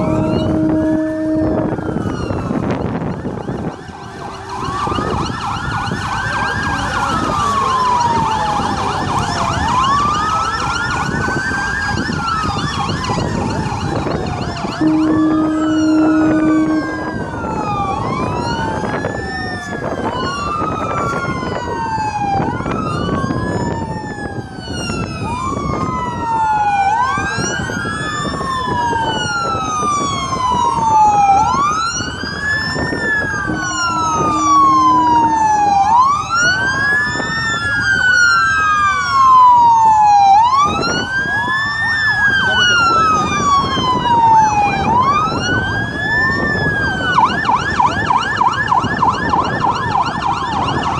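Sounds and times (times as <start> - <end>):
horn blast: 0.0 - 2.7, 14.8 - 17.9, 33.3 - 36.8
boat sirens wailing: 0.0 - 50.9
engines and water rumbling: 0.0 - 50.9.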